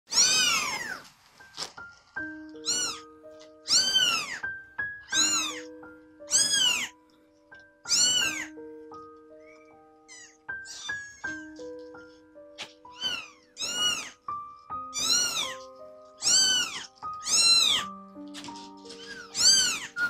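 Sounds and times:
kittens meowing loudly: 0:00.1 - 0:01.0, 0:02.5 - 0:05.7, 0:06.3 - 0:07.0, 0:07.9 - 0:08.6, 0:10.1 - 0:11.5, 0:12.9 - 0:14.3, 0:14.9 - 0:20.0
soft background music: 0:00.1 - 0:20.0.

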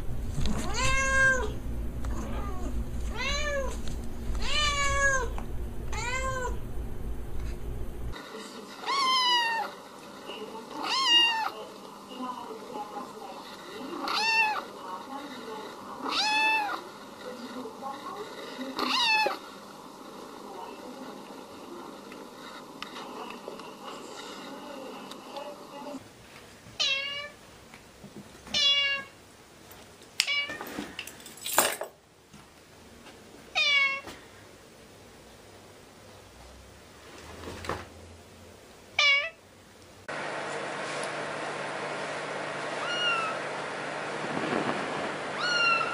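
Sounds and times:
cat meowing: 0:00.6 - 0:03.8, 0:04.4 - 0:06.6, 0:08.8 - 0:09.7, 0:10.8 - 0:11.6, 0:14.0 - 0:14.6, 0:16.0 - 0:16.8, 0:18.8 - 0:19.4, 0:26.8 - 0:27.4, 0:28.5 - 0:29.1, 0:33.6 - 0:34.0, 0:39.0 - 0:39.4, 0:42.8 - 0:43.4, 0:45.4 - 0:45.9
kitten meowing high-pitched: 0:02.4 - 0:03.7, 0:04.4 - 0:05.3, 0:42.8 - 0:43.3, 0:45.4 - 0:45.9.

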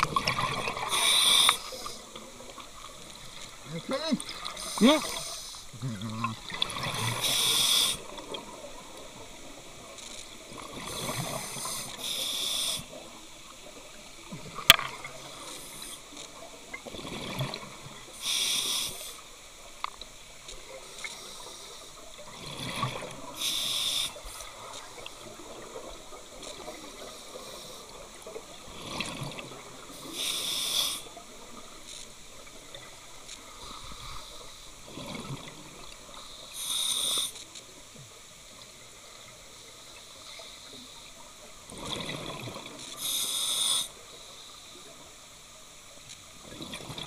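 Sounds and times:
exhaled bubbles underwater: 0:00.0 - 0:02.8, 0:03.7 - 0:09.6, 0:41.7 - 0:42.8
regulator hiss: 0:00.8 - 0:06.2, 0:07.1 - 0:08.2, 0:10.8 - 0:13.1, 0:15.3 - 0:16.2, 0:18.2 - 0:19.4, 0:23.3 - 0:24.7, 0:29.8 - 0:31.2, 0:36.1 - 0:37.6, 0:42.9 - 0:45.0.

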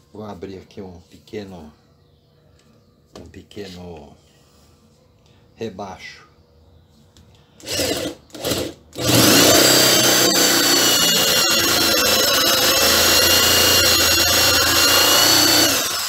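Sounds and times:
electric drill whining: 0:07.6 - 0:16.0.

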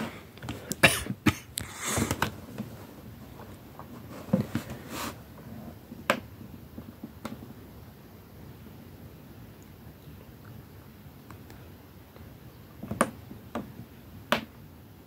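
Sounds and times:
cardboard box rustling and knocking: 0:03.8 - 0:05.2.

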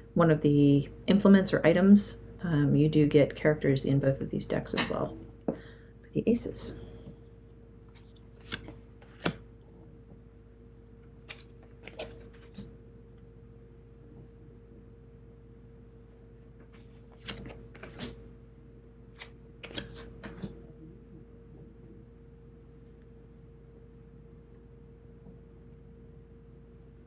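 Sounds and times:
faint steady hum: 0:00.0 - 0:27.0
cards clicking and sliding: 0:08.0 - 0:09.4, 0:11.3 - 0:12.7, 0:16.6 - 0:18.2, 0:19.2 - 0:20.6.

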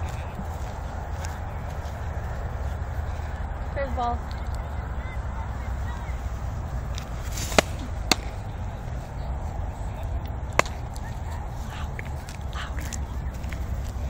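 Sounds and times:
steady low rumble: 0:00.0 - 0:14.0
softball smacking into leather gloves: 0:07.0 - 0:08.5, 0:10.4 - 0:11.1.

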